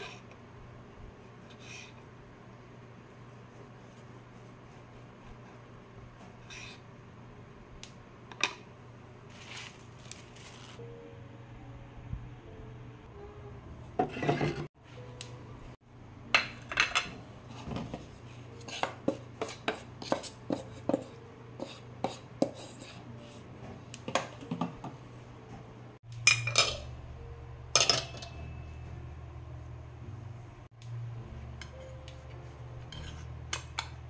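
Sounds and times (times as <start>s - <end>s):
spatula scraping a pot: 1.4s - 2.0s, 6.4s - 6.8s, 14.0s - 14.7s, 17.5s - 23.4s, 32.8s - 33.6s.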